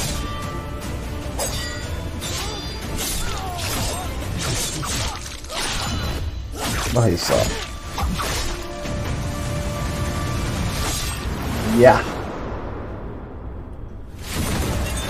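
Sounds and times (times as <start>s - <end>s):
dramatic background score: 0.0s - 15.0s
low rumble: 9.2s - 15.0s.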